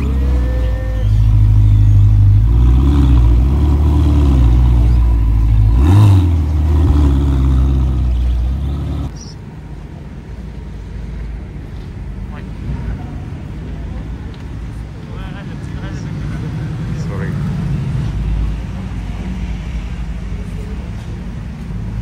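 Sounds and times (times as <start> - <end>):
car engine idling: 0.0 - 9.4.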